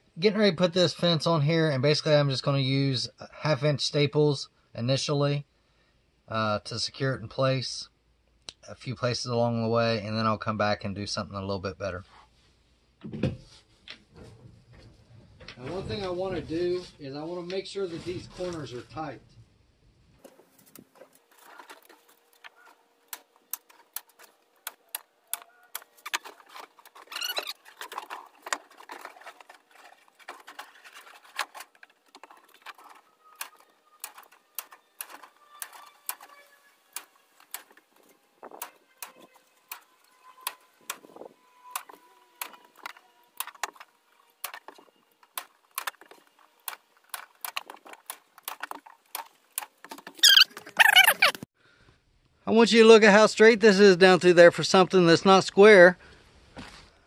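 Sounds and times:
handling noise: 20.2s - 51.4s.

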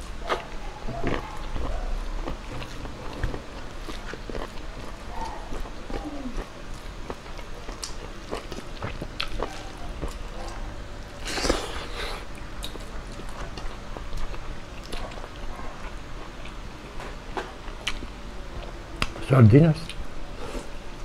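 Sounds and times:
person chewing food: 0.0s - 19.2s.

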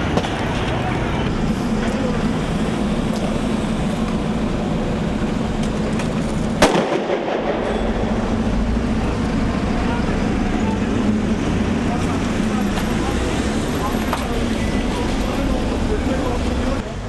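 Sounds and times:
heavy vehicle engines: 0.0s - 17.0s
street noise: 0.0s - 17.0s
sharp bang: 6.6s - 8.4s.

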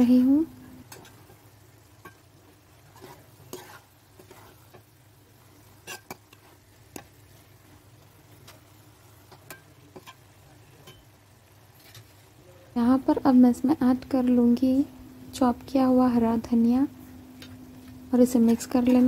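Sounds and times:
ladle scraping steel pot: 2.8s - 4.8s, 5.8s - 6.6s.

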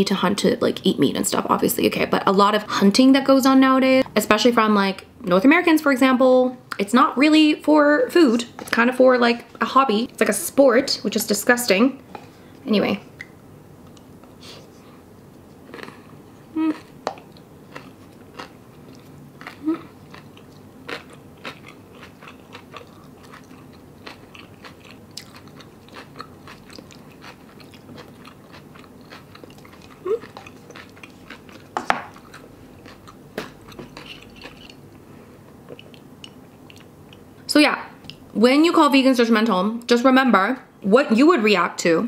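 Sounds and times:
person chewing food: 15.4s - 37.3s.

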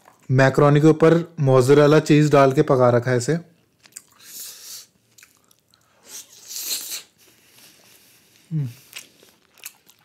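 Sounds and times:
hissing mouth sound: 4.2s - 5.0s, 6.0s - 9.0s
person humming: 8.5s - 8.9s.

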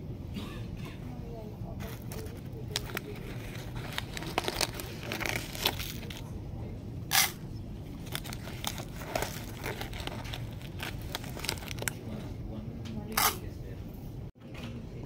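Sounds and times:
foil crinkling: 1.8s - 6.3s, 8.0s - 12.2s.

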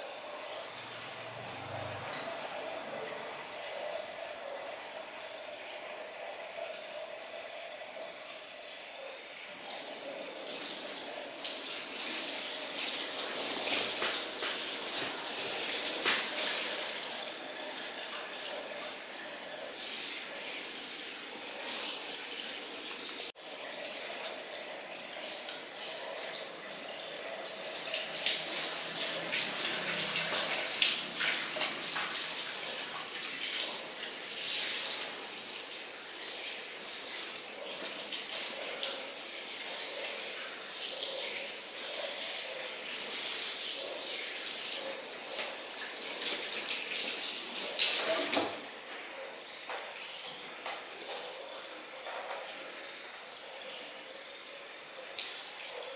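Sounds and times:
water splashing on hair: 9.8s - 49.1s
shower head spraying water: 9.8s - 49.3s.

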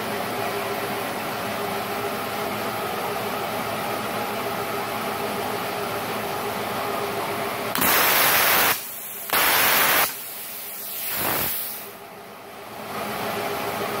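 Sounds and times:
steady hum: 0.0s - 14.0s
plasma cutter torch hissing: 7.7s - 12.0s.

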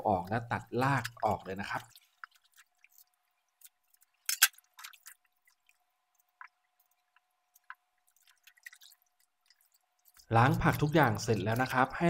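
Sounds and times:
water dripping and splashing: 0.0s - 12.0s.

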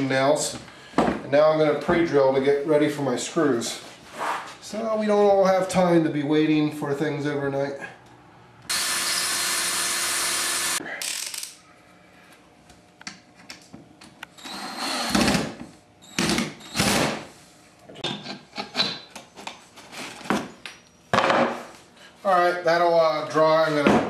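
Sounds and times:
cordless drill boring into wood: 8.7s - 11.5s.

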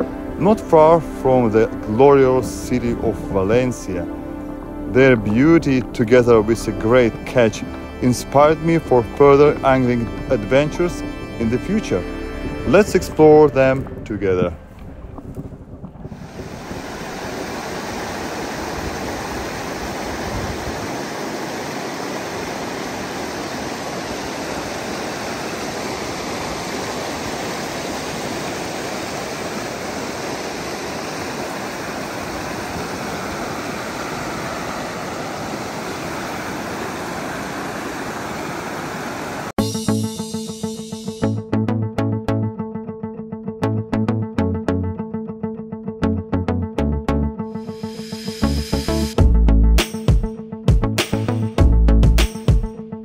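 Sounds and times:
river water rushing: 16.2s - 39.6s.

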